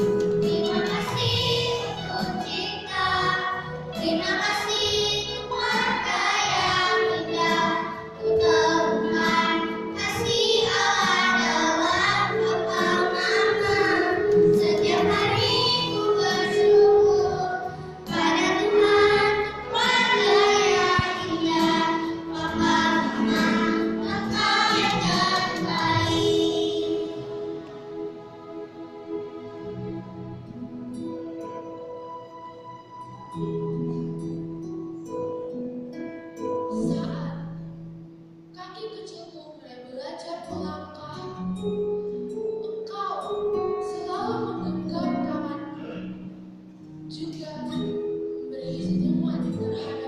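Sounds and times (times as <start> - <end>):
children's choir singing: 0.1 - 29.5
girl singing into microphone: 0.4 - 27.1.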